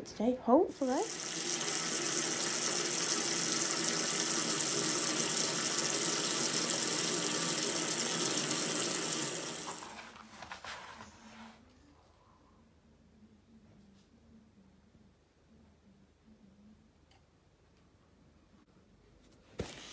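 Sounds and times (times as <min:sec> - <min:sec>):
tap water filling bathtub: 0:00.8 - 0:10.0.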